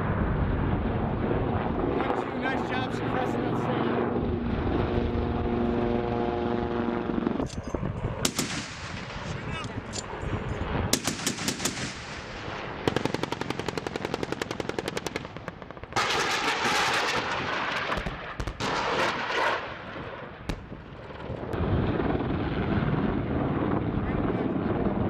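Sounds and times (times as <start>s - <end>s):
helicopter rotor and engine: 0.0s - 25.0s
gatling cannon fire: 8.2s - 9.6s, 10.9s - 22.5s.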